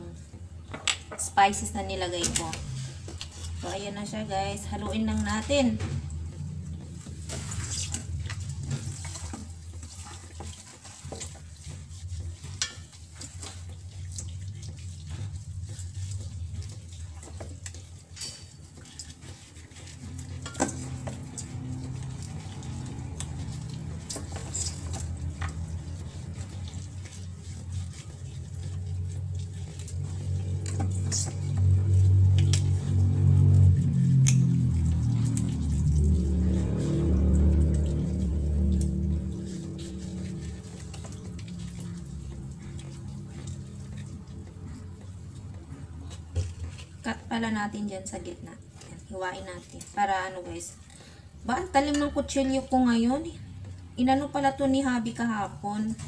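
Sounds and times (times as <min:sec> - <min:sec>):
wet squelching of meat: 0:01.4 - 0:56.0.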